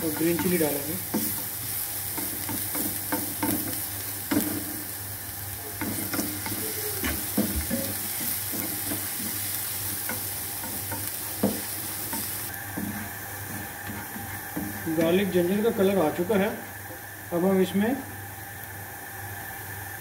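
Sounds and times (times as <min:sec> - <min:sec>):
garlic sizzling in oil: 0:00.0 - 0:20.0
spatula scraping a pan: 0:05.8 - 0:15.4.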